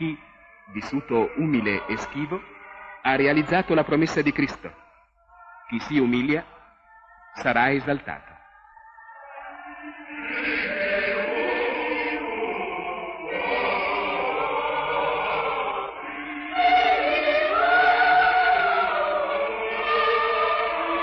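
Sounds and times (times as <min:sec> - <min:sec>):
choir singing: 0:00.0 - 0:21.0.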